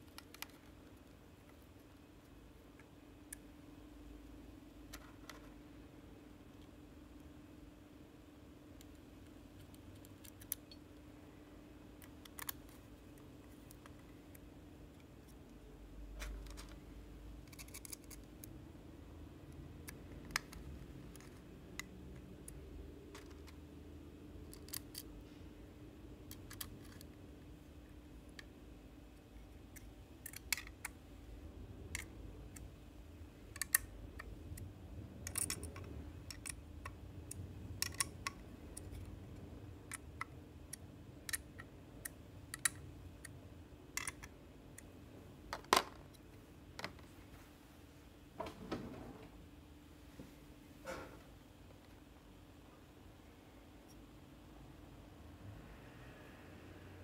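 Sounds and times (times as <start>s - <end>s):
small parts clicking and tapping: 0.0s - 3.6s, 4.8s - 5.6s, 8.7s - 11.1s, 11.8s - 18.6s, 19.4s - 25.4s, 26.2s - 27.4s, 28.2s - 44.9s
faint steady hum: 0.0s - 57.0s.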